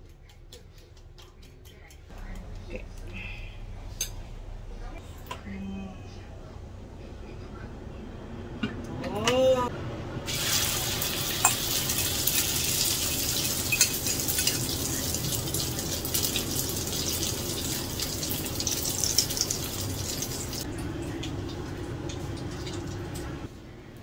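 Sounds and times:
omelette sizzling in hot oil: 10.3 - 20.7.

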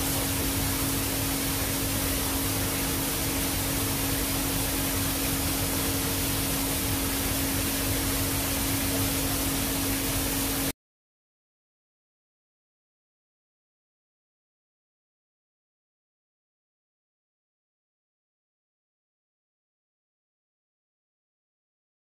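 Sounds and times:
low electric hum: 0.0 - 10.7.

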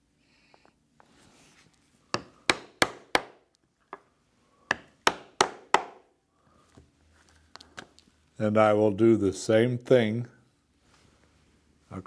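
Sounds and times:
mallet striking chisel through leather: 2.1 - 3.4, 4.7 - 6.0.

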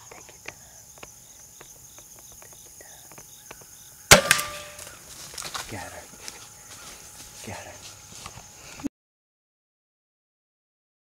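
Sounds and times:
insects chirping: 0.0 - 8.9
crossbow release crack: 4.1 - 5.5.

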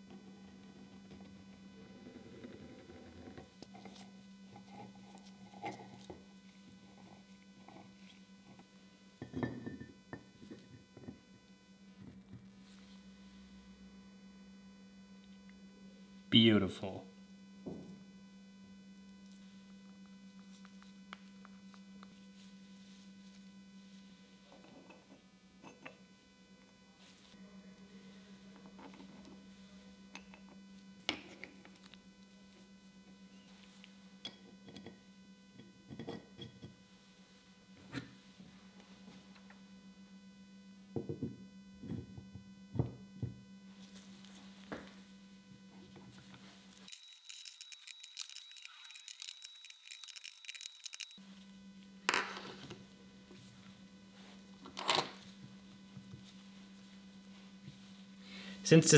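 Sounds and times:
low electrical hum: 0.0 - 58.9
metal chuck parts clicking: 46.9 - 51.2.

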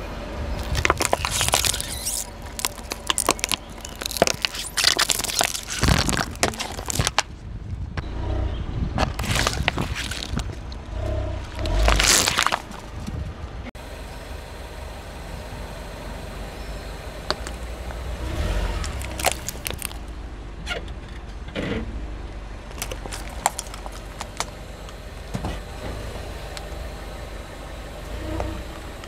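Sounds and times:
car engine running low: 0.0 - 29.0
car rolling over asphalt: 0.0 - 29.0
clicks and cracks under tyres: 0.6 - 8.0, 9.0 - 13.2, 17.2 - 21.9, 22.6 - 25.7.

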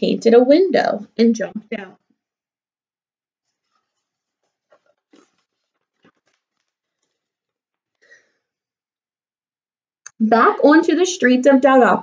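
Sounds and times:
paper page turning: 3.4 - 8.0.

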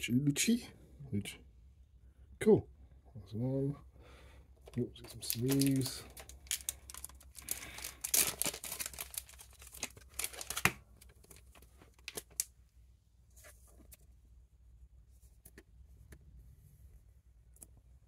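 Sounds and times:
plastic sleeves crinkling: 4.6 - 12.5
trading card clicks and rustles: 4.6 - 12.5.

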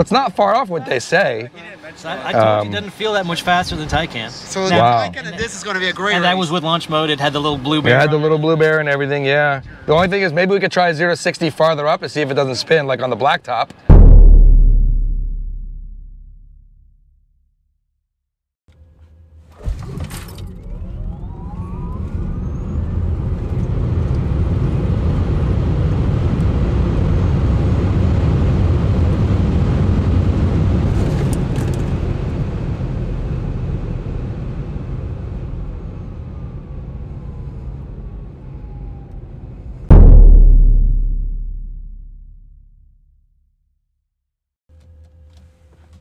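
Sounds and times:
loud low hit: 13.9 - 16.9, 39.9 - 42.9
wind and tyre noise: 20.4 - 39.9.

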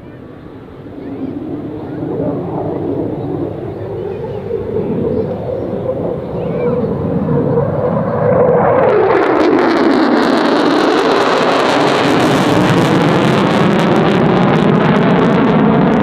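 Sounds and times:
jet engine crackle: 0.0 - 16.0
jet passing overhead in afterburner: 0.0 - 16.0.

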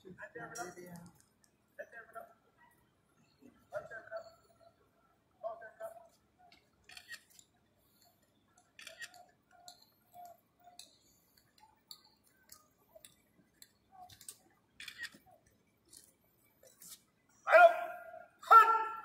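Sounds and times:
faint scattered ticks and clicks: 0.4 - 2.4, 5.9 - 17.5.

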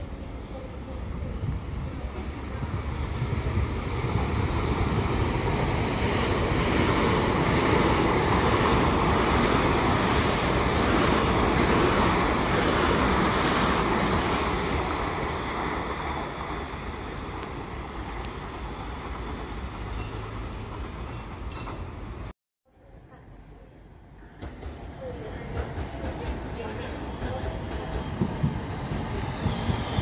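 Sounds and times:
passenger train passing at speed: 0.0 - 22.3, 23.8 - 30.0.

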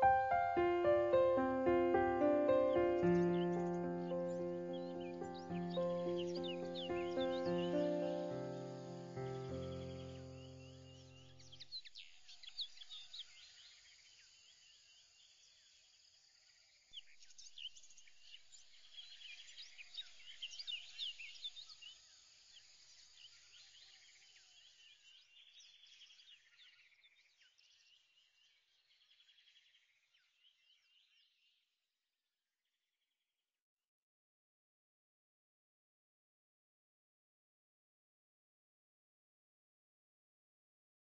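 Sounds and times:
birds chirping: 0.0 - 11.7.

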